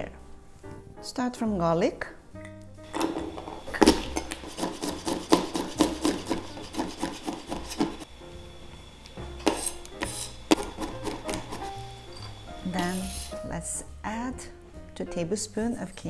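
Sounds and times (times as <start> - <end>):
knife chopping on cutting board: 2.9 - 8.1, 9.4 - 11.8.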